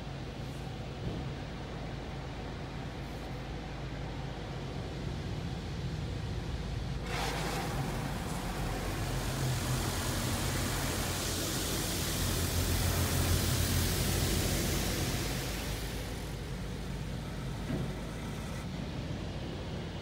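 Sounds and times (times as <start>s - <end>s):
car wash water spray hissing: 7.0s - 19.7s.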